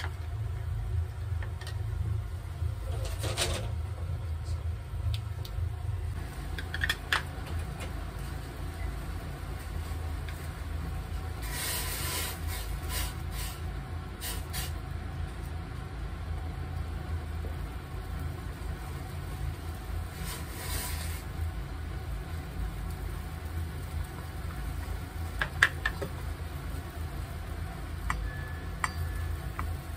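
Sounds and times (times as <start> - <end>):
gas stove low rumble: 0.0 - 29.9
short bursts of hiss: 11.4 - 13.6.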